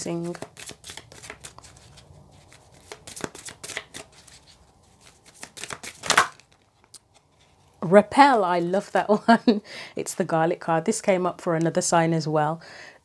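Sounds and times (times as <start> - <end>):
cards being shuffled: 0.0 - 7.7
slap of cards: 5.4 - 6.4.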